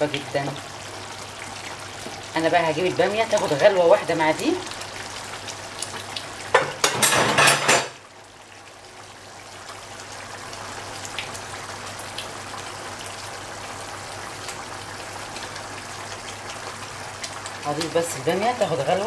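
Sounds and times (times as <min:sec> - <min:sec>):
sauce bubbling in a frying pan: 0:00.0 - 0:19.0.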